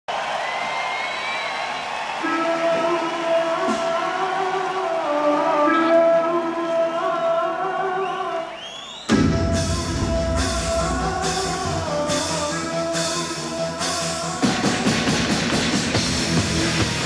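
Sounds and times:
rising sweep: 9.1s - 13.2s
instrumental rock band: 9.1s - 17.0s.

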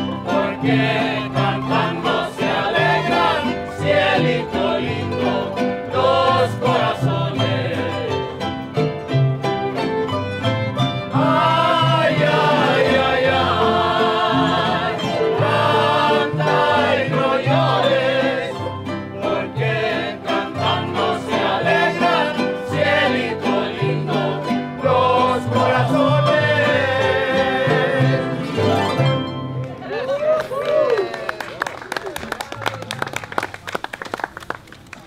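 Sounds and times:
voices singing: 0.0s - 8.6s, 11.1s - 29.0s
folk string band playing: 0.0s - 30.4s.

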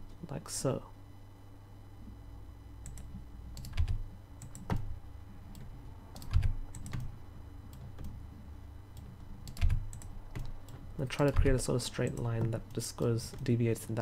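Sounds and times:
low steady hum: 0.0s - 14.0s
keyboard and mouse clicks: 2.8s - 4.9s, 5.5s - 7.1s, 9.0s - 13.5s.

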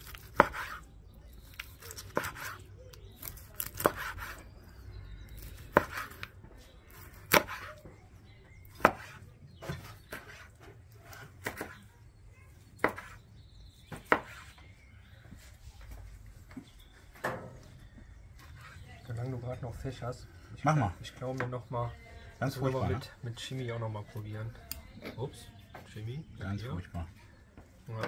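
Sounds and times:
knife slicing steak: 0.0s - 0.8s, 1.6s - 4.5s.

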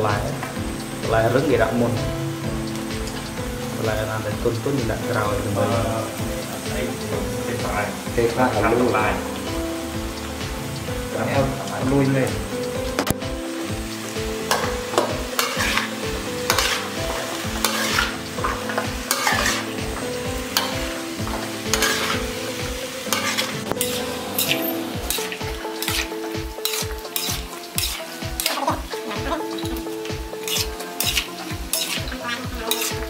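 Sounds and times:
food sizzling in wok: 0.0s - 33.0s
metal ladle scraping wok: 14.5s - 33.0s.

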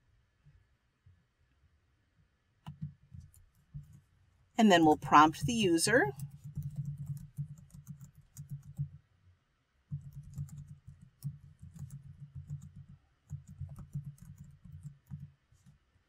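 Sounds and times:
typing on computer keyboard: 6.0s - 9.0s, 9.9s - 15.7s.

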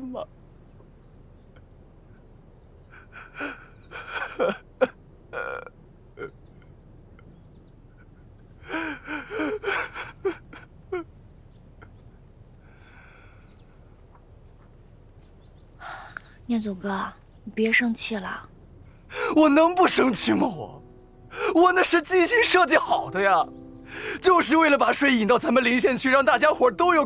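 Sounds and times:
faint breath: 12.6s - 13.8s, 15.8s - 16.4s, 23.8s - 24.2s.

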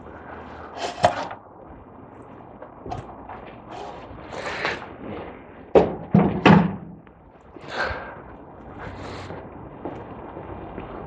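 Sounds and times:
car part knocking and scraping: 5.7s - 7.0s.

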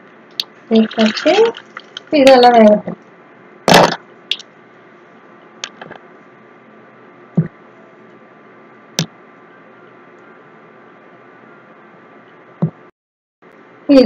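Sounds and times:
oil popping: 0.4s - 2.2s.

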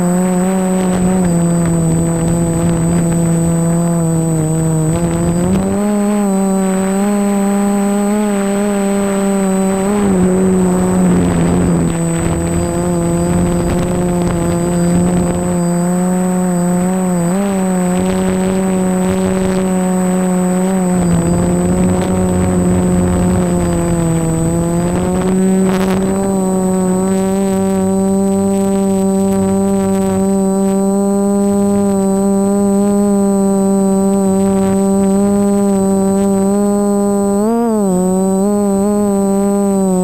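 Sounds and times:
drone motors humming: 0.0s - 40.0s
rush of air noise: 0.9s - 15.6s, 18.6s - 28.0s.

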